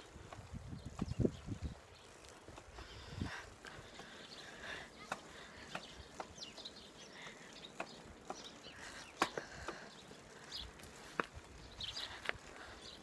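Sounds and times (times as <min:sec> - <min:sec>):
bicycle clicks and knocks: 0:00.0 - 0:12.8.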